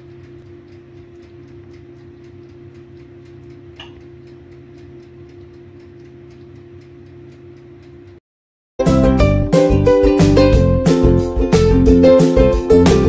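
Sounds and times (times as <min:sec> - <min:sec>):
rapid ticking: 0:00.0 - 0:08.2.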